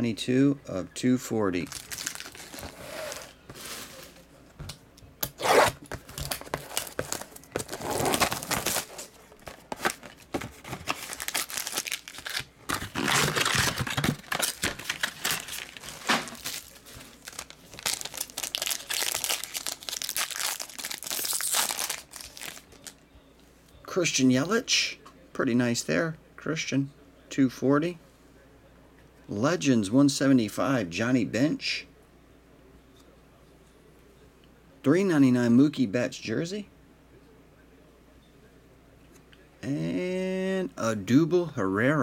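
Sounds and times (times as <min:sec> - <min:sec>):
foil wrapper crinkling and tearing: 0:01.6 - 0:03.3, 0:05.3 - 0:23.0.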